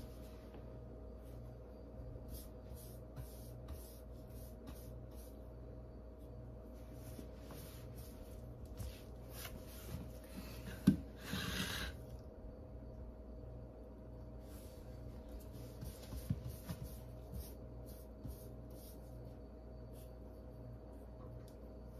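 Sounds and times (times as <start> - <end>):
steady low hum: 0.0 - 21.9
paintbrush stroking on wall: 1.2 - 5.5, 6.6 - 10.2, 14.4 - 20.3.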